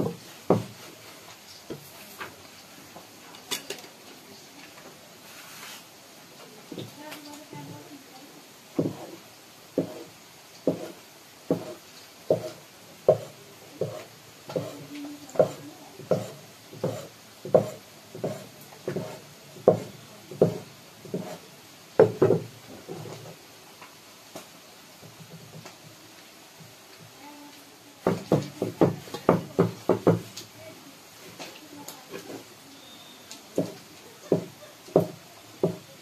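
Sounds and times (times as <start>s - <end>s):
cleaver chopping on wooden board: 10.7s - 14.8s, 15.4s - 21.4s.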